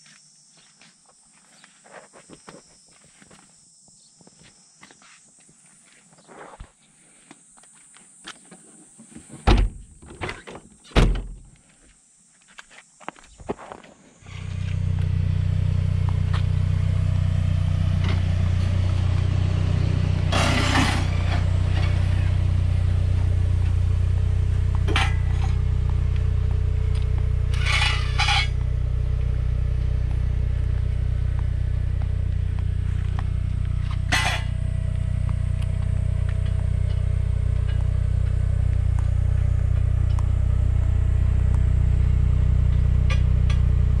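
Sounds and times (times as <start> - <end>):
engine idling: 14.2 - 44.0
metallic clinks and scrapes: 20.3 - 22.2, 24.9 - 25.7, 27.5 - 28.6, 33.8 - 34.7.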